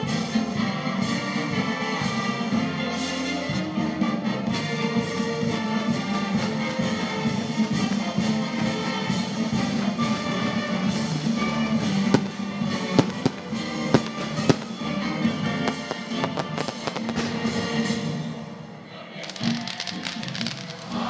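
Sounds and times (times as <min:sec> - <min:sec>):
music playing: 0:00.0 - 0:21.0
fireworks bangs: 0:06.2 - 0:18.2, 0:19.2 - 0:21.0.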